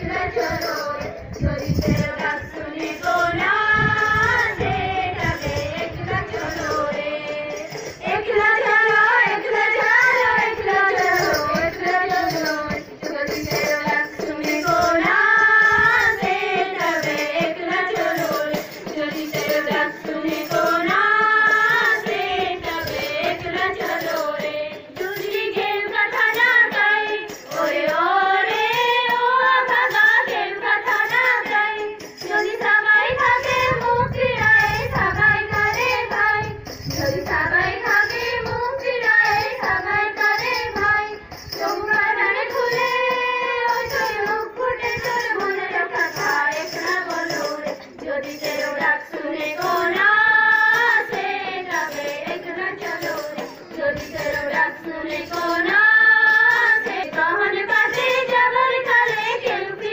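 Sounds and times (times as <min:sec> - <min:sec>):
children singing: 0:02.0 - 0:36.4, 0:37.0 - 0:59.9.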